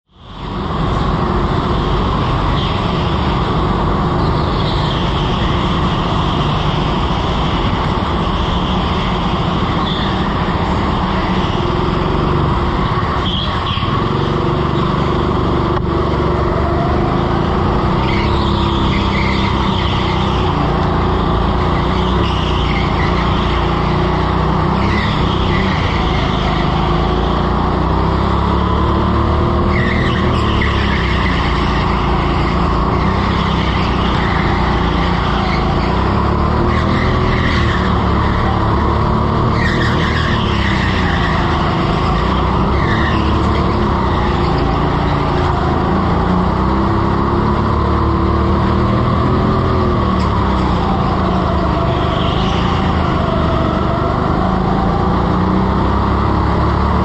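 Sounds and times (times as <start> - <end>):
go-kart motor: 0.5 - 57.0
tyre squeals: 15.9 - 54.7.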